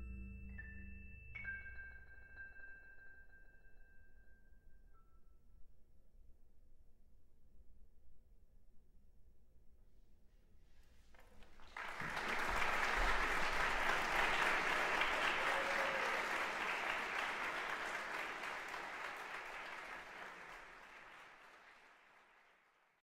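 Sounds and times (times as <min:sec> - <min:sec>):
audience applause: 0:11.2 - 0:23.0
percussion ensemble: 0:11.3 - 0:21.4.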